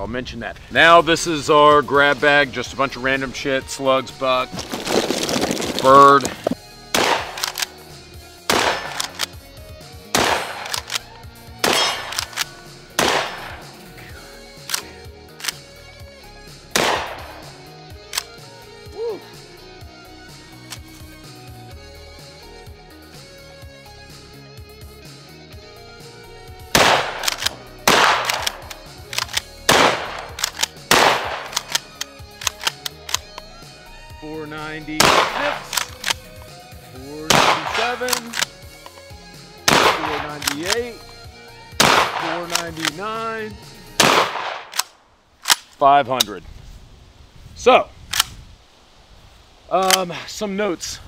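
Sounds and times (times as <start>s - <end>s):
background music: 0.0s - 46.3s
shotgun pump racking: 4.5s - 7.9s, 8.5s - 9.5s, 10.2s - 13.8s, 14.6s - 15.7s, 16.8s - 18.4s, 20.6s - 21.1s, 26.8s - 33.5s, 35.0s - 36.6s, 37.3s - 41.2s, 41.8s - 43.1s, 44.0s - 45.8s
shotgun shots: 6.9s - 7.7s, 8.5s - 9.4s, 10.1s - 11.0s, 11.6s - 13.8s, 16.7s - 17.5s, 26.7s - 33.2s, 35.0s - 36.2s, 37.3s - 38.5s, 39.7s - 40.9s, 41.8s - 43.0s, 44.0s - 45.7s.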